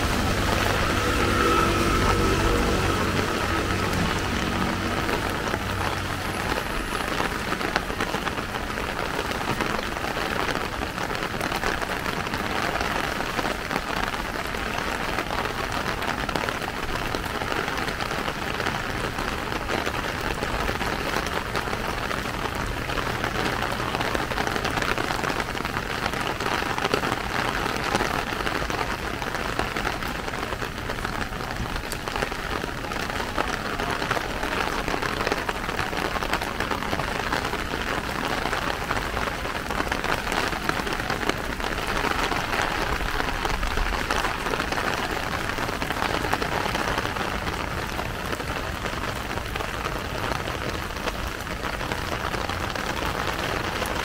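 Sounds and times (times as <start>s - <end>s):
rain on plastic umbrella: 0.0s - 54.0s.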